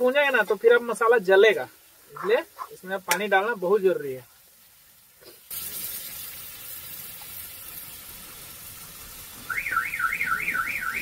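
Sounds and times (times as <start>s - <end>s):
food sizzling in a pan: 0.0s - 11.0s
warbling electronic alarm: 9.5s - 11.0s.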